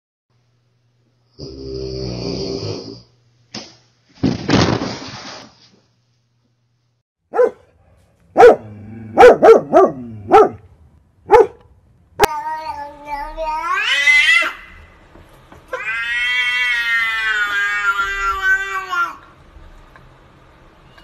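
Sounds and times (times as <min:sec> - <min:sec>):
dog barking: 0:07.3 - 0:10.7, 0:11.3 - 0:11.7.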